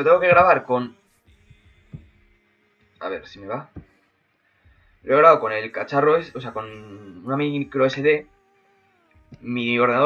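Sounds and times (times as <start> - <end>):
soft low thumps: 0.0 - 2.4, 4.6 - 8.4, 9.2 - 9.7.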